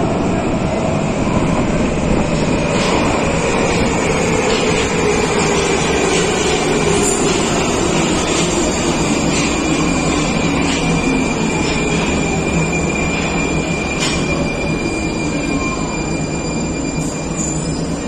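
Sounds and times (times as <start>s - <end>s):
train rolling noise: 0.0s - 18.0s
high-pitched wheel squeal: 9.2s - 18.0s.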